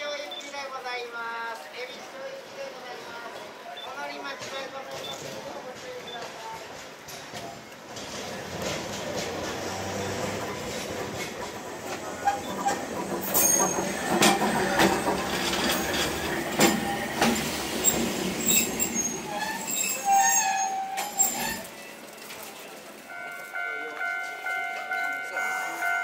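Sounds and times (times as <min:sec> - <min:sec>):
tram wheels clattering over rails: 0:04.3 - 0:26.0
wheel squeals: 0:09.8 - 0:22.4.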